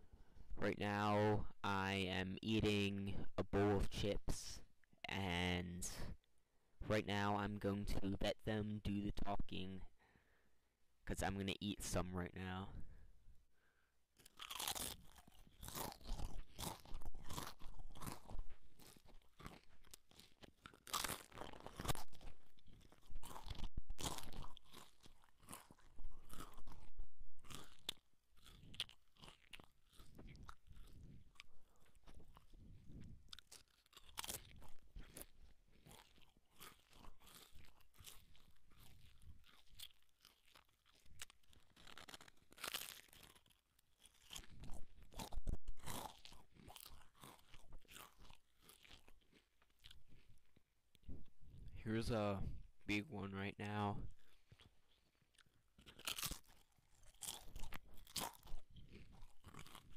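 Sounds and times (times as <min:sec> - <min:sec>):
potato chips crunching: 0:14.2 - 0:51.1, 0:53.0 - 0:59.9.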